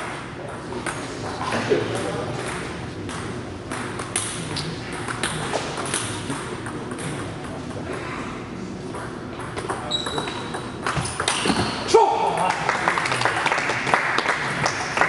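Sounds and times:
table tennis ball bouncing: 0:00.0 - 0:07.6, 0:08.9 - 0:11.7
hum of large hall: 0:00.0 - 0:15.0.

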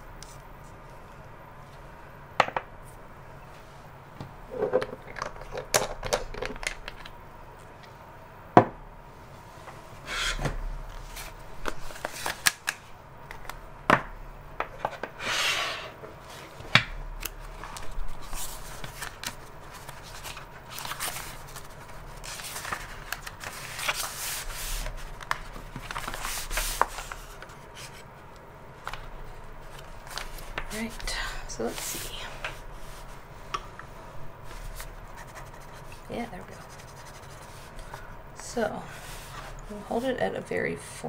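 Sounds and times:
paper notebook rustling: 0:10.9 - 0:12.8, 0:17.4 - 0:28.0, 0:28.8 - 0:31.0, 0:34.4 - 0:38.0.

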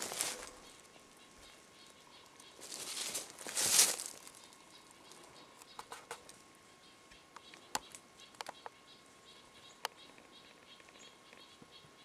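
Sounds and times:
footsteps on rocky trail: 0:00.0 - 0:00.6, 0:02.6 - 0:04.5.

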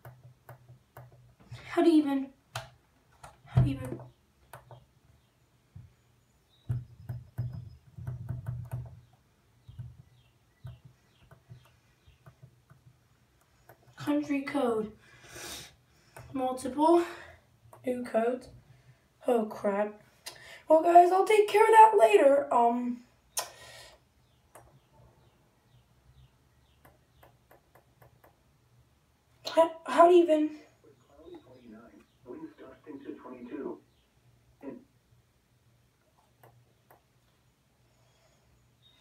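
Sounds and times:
faint high chirps: 0:38.2 - 0:39.0.

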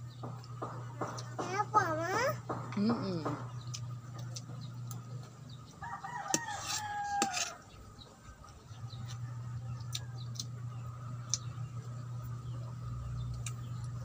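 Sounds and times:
rooster crowing: 0:05.8 - 0:07.7.

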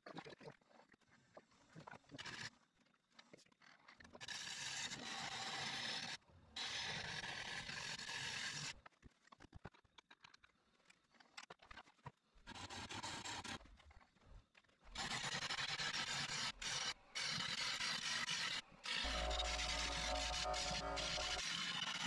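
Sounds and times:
lathe tool scraping wood: 0:15.4 - 0:21.6.

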